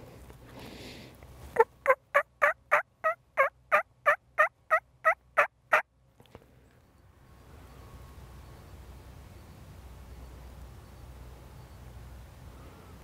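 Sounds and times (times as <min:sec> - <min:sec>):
turkey yelping: 0:01.6 - 0:05.8.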